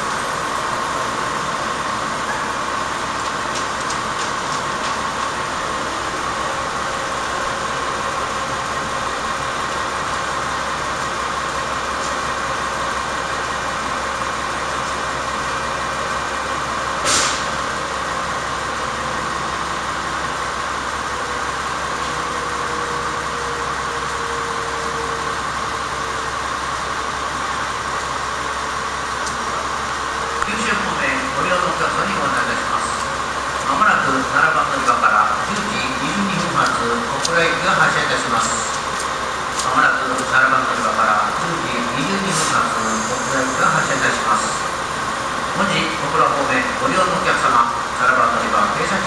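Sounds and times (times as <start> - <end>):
diesel railcar idling: 0.0 - 49.0
sharp click: 17.1 - 17.5.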